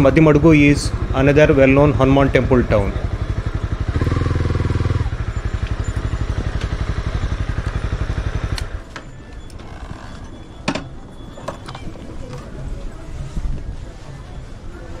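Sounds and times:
motorcycle engine idling: 0:00.0 - 0:09.6.

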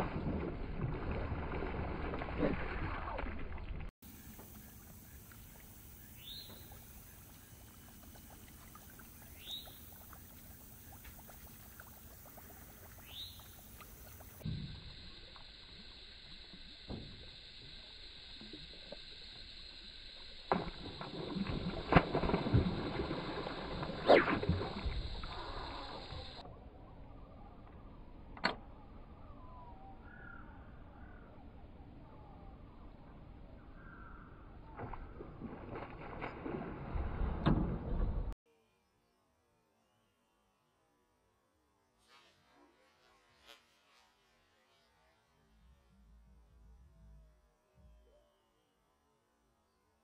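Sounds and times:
fish splashing in water: 0:20.5 - 0:26.4.

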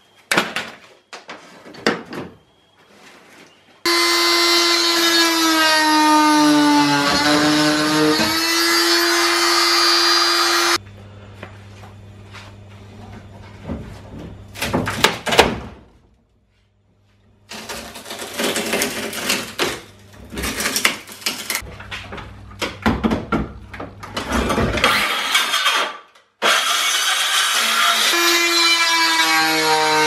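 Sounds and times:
circular saw running: 0:03.9 - 0:10.8
wood cracking and splintering: 0:17.5 - 0:21.6.

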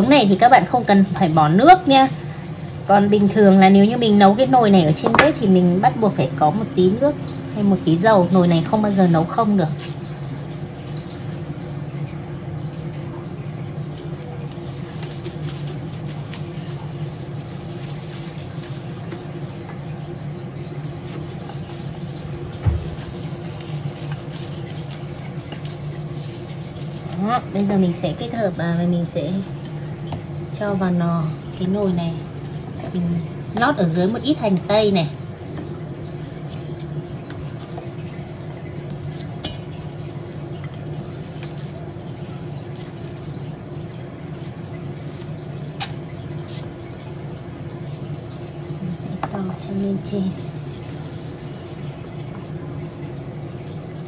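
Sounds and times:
low machine hum: 0:00.0 - 0:54.0
gloved hands rubbing wet skin: 0:01.6 - 0:11.6, 0:13.8 - 0:28.0, 0:50.4 - 0:52.4
onion slices tapping in pot: 0:05.0 - 0:05.5.

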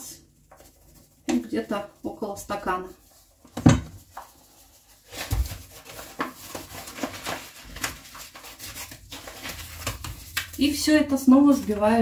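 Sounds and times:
paper bag rustling and crinkling: 0:00.4 - 0:12.0
thump: 0:03.6 - 0:04.0.

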